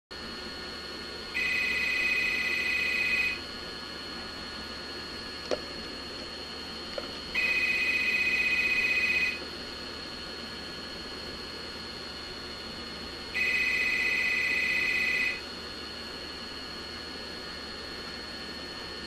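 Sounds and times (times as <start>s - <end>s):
telephone ringing trill: 1.3s - 3.4s, 7.3s - 9.4s, 13.3s - 15.4s.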